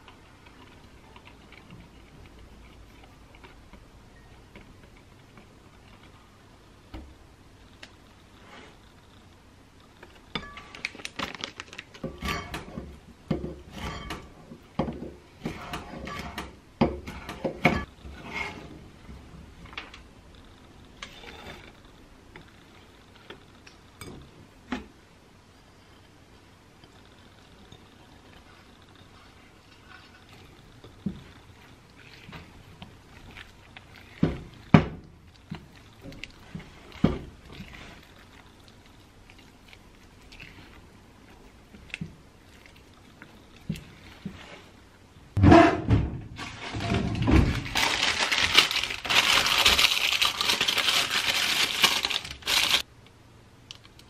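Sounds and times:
spatula stirring wet batter: 0.0s - 9.0s, 11.9s - 19.8s, 20.6s - 24.3s, 26.7s - 45.4s.

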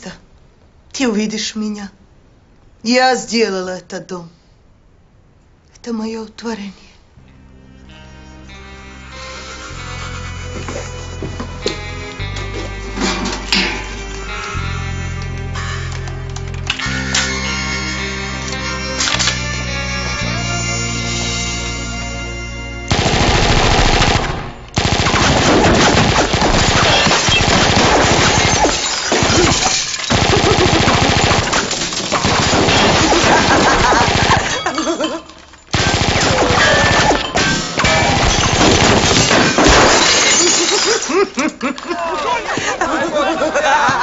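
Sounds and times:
music: 7.2s - 28.8s
rapid automatic gunfire: 22.9s - 28.6s, 30.1s - 34.5s, 35.7s - 37.0s, 38.0s - 39.2s.

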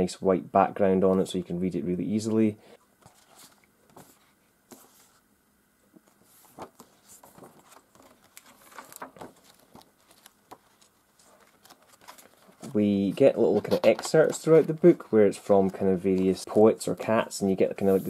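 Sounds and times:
book pages turning: 3.0s - 5.2s, 6.0s - 17.2s.

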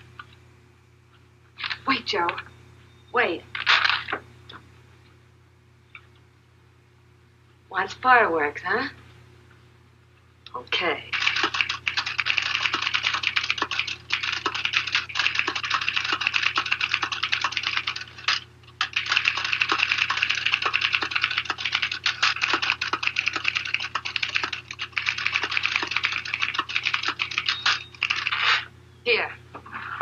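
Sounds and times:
manual typewriter typing: 11.1s - 28.4s.

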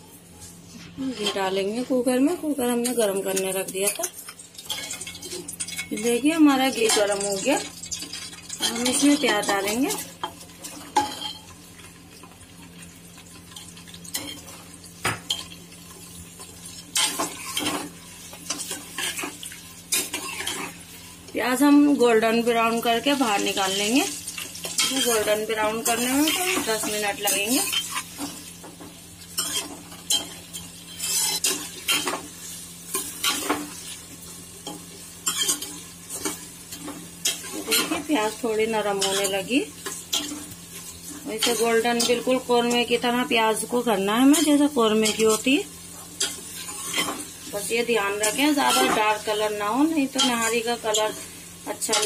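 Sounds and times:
onions sizzling in ghee: 0.0s - 52.0s.

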